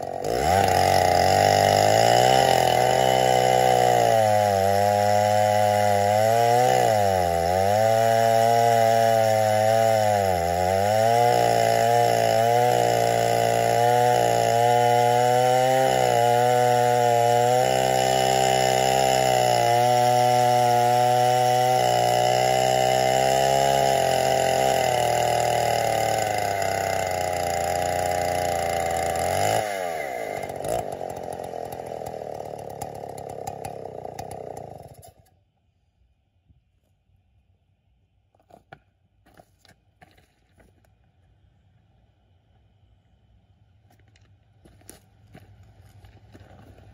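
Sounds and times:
chainsaw cutting wood: 0:00.0 - 0:35.4.

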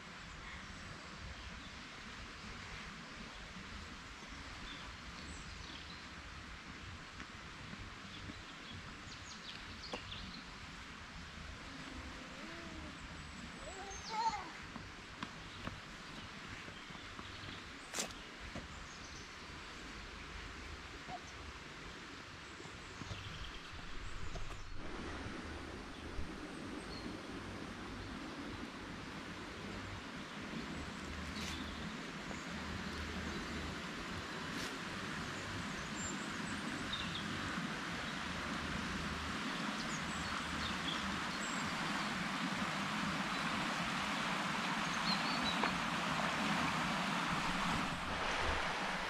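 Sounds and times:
water rushing over weir: 0:36.5 - 0:49.0.

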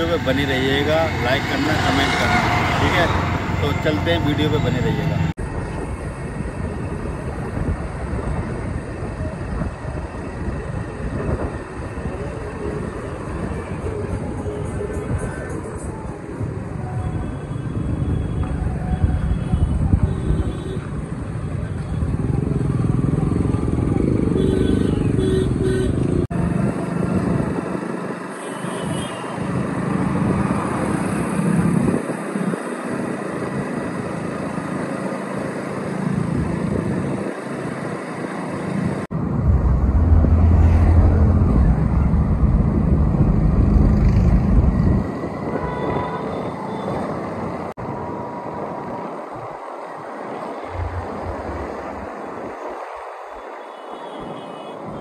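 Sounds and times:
wind buffeting on microphone: 0:17.7 - 0:22.3, 0:39.1 - 0:46.3.

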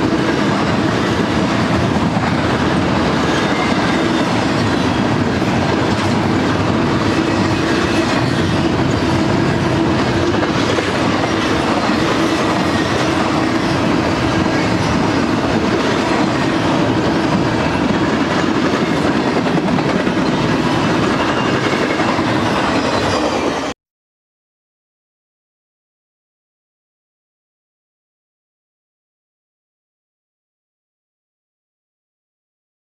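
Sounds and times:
freight train wheels on rails: 0:00.0 - 0:23.8.

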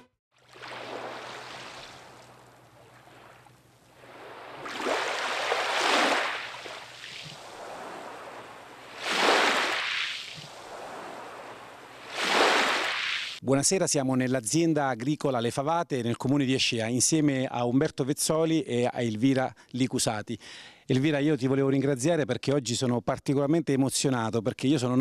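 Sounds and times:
waves washing onto pebble beach: 0:04.0 - 0:13.4.

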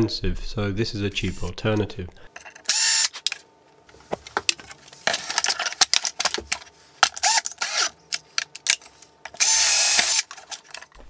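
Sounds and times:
drill motor burst: 0:02.7 - 0:03.2, 0:07.2 - 0:07.9, 0:09.4 - 0:10.3
drill chuck clicks and rattles: 0:05.3 - 0:10.9.

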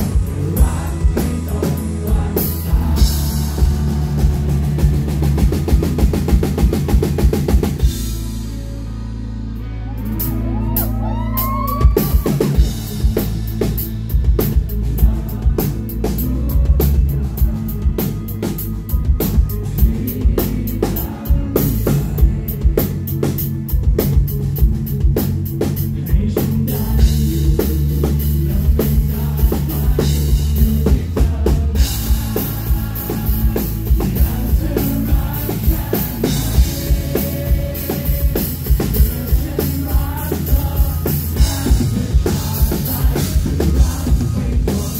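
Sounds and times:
drum kit rapid hits: 0:00.0 - 0:08.3, 0:11.8 - 0:44.9
bass guitar: 0:00.0 - 0:44.9
distorted electric guitar: 0:00.0 - 0:44.9.

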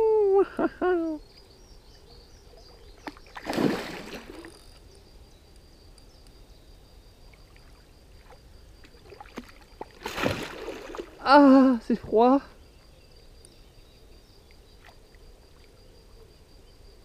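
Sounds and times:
fish splashing at surface: 0:03.4 - 0:04.6, 0:09.0 - 0:11.2.

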